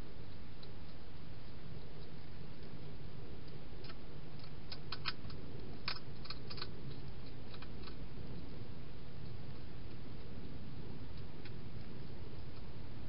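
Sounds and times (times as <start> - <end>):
steady low hum: 0.0 - 13.0
hedgehog crunching dry food: 3.8 - 8.0.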